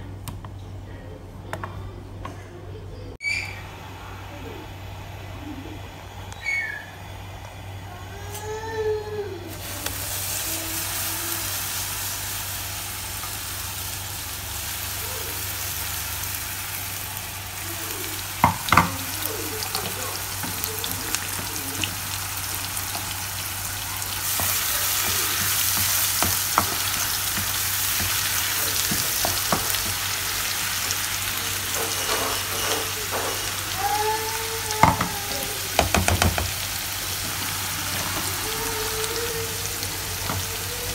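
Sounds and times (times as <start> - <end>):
paste sizzling in hot oil: 9.5 - 34.0
spatula knocking pan: 18.4 - 21.7, 24.2 - 30.0, 34.8 - 36.6.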